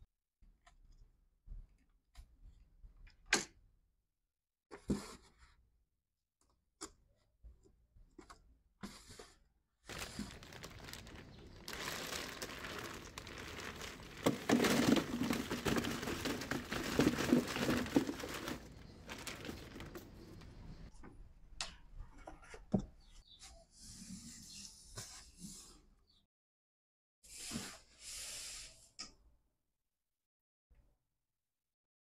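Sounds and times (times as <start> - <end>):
plastic ice bag crinkling: 9.9 - 20.9.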